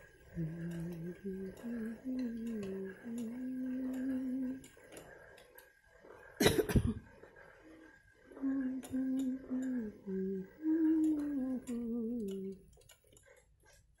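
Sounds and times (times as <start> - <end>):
person humming a tune: 0.4 - 4.7, 8.4 - 12.7
person coughing: 6.4 - 7.1.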